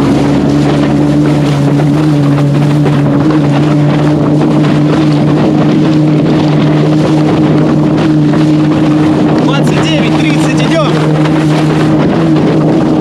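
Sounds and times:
wind on microphone: 0.0s - 13.0s.

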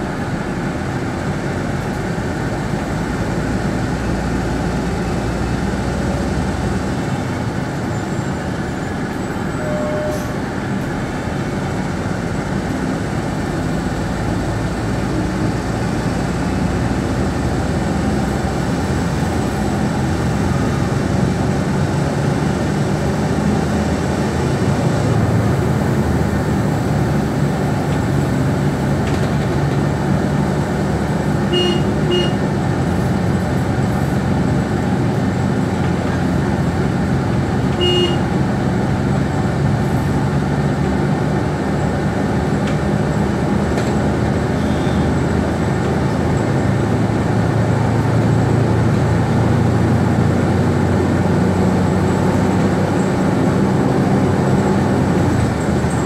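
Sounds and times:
vehicle engine and road noise: 0.0s - 56.0s
vehicle horn toots: 9.5s - 10.4s, 31.5s - 32.4s, 37.8s - 38.3s, 44.6s - 45.1s.

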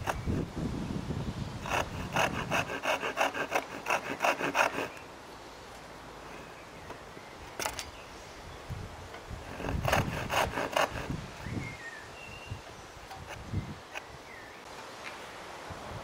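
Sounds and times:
handsaw rasping through wood: 1.6s - 5.0s, 9.4s - 11.2s.

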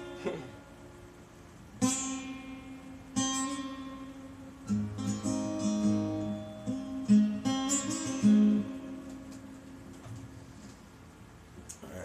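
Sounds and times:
acoustic guitar strummed and picked: 1.6s - 10.6s.

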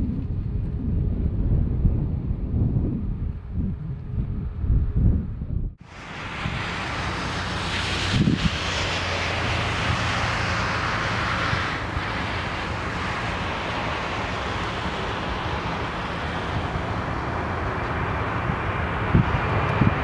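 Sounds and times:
wind buffeting microphone: 0.0s - 20.0s
jet engines at takeoff thrust: 5.8s - 20.0s.

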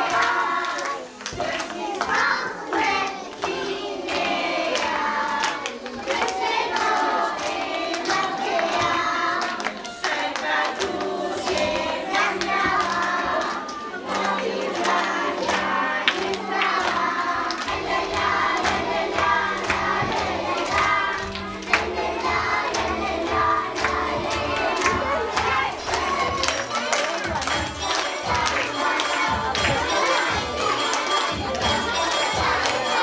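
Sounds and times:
children singing together: 0.0s - 33.0s
recorded music with steady beat: 16.7s - 33.0s.

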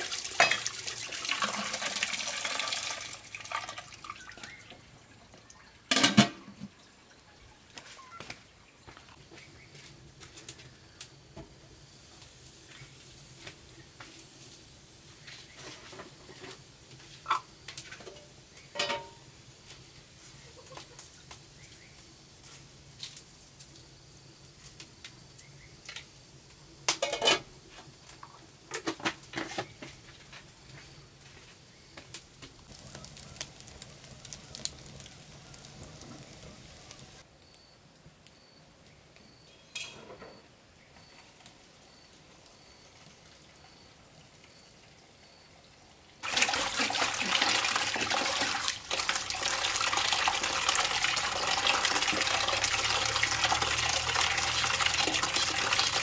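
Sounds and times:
faint sizzling: 0.0s - 56.0s
metal pot and utensils clinking: 0.2s - 1.7s, 5.9s - 6.8s, 17.2s - 19.3s, 26.9s - 27.5s, 39.5s - 40.4s
faint high chirp: 4.1s - 5.8s, 6.8s - 9.8s, 37.4s - 45.6s.

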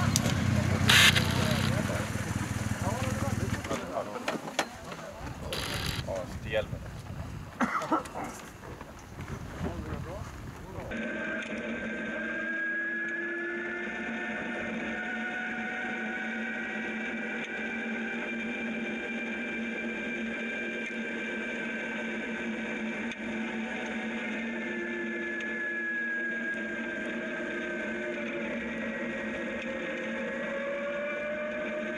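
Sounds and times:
electric motor whine: 0.0s - 3.8s, 5.4s - 6.2s, 10.9s - 31.9s.

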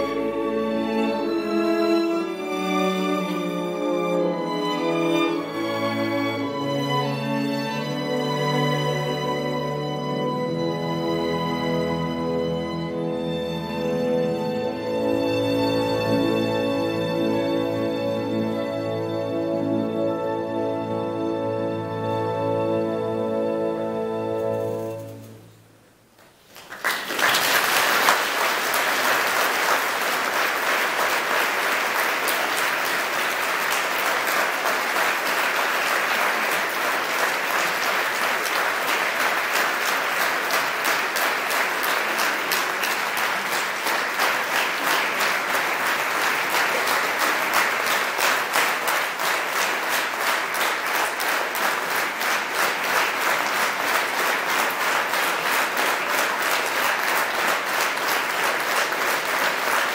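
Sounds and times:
audience applauding: 26.4s - 59.9s.

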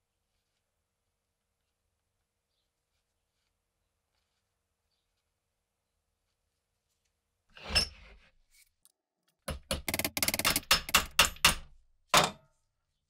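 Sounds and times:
metal tools knocking on workbench: 9.5s - 12.5s.

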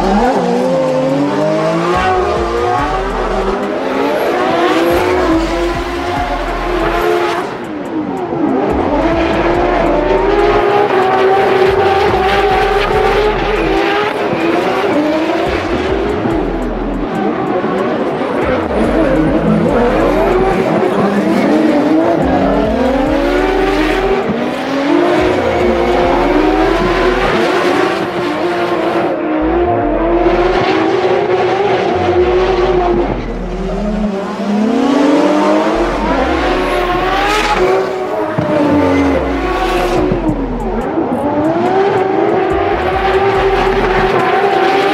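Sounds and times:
car engines at high revs: 0.0s - 44.9s.

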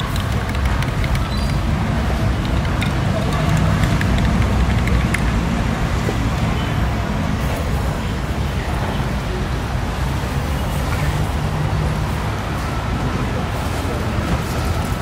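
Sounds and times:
faint voices: 0.0s - 15.0s
low traffic rumble: 0.0s - 15.0s.

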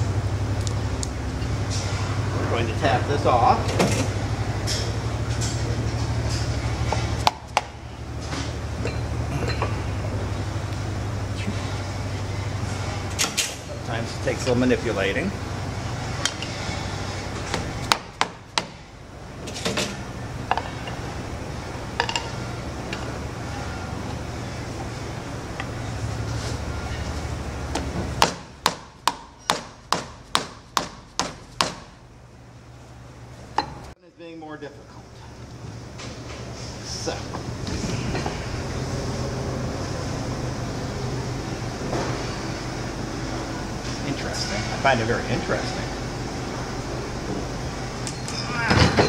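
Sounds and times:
steady low hum: 0.0s - 49.0s
hammer knocking on metal: 28.2s - 31.9s.

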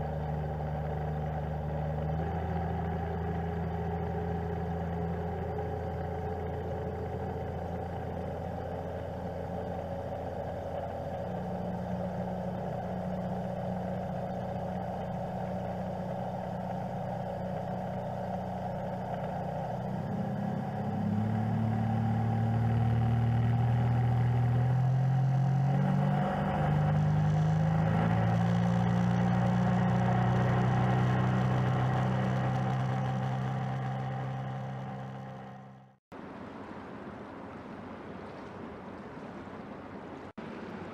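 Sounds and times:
outboard motorboat engines: 0.0s - 40.9s.

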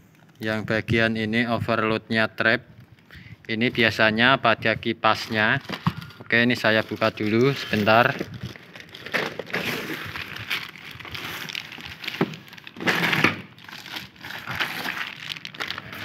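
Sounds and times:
plastic wrapping crinkling: 5.1s - 16.0s.

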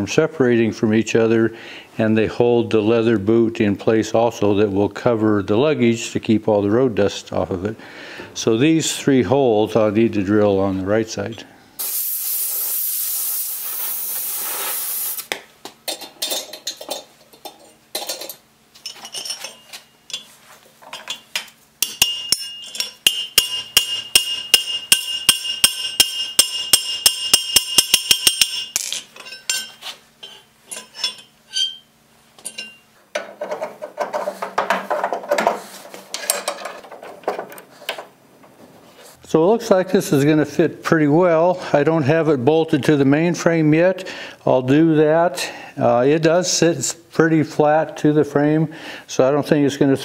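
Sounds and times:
gas torch hissing: 11.8s - 15.3s
metal handling noise: 15.8s - 38.6s
metal clinks: 21.0s - 31.8s
hammer striking rivet on anvil: 21.8s - 28.9s.

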